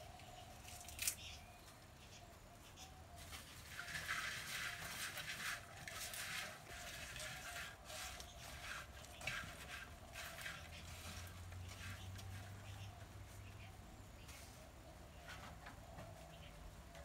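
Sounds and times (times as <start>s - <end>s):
hand mixing okra in a pot: 3.2s - 13.6s.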